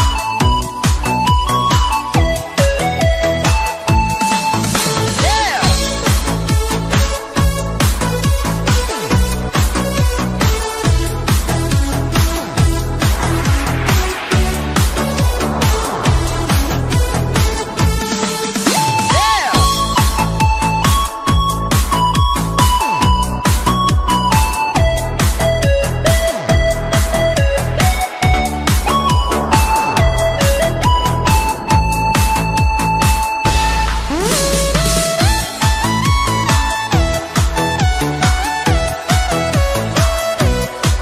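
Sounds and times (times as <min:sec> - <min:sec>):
electronic dance music: 0:03.7 - 0:06.5, 0:12.1 - 0:21.6, 0:27.8 - 0:37.6
synth lead line: 0:27.6 - 0:35.0.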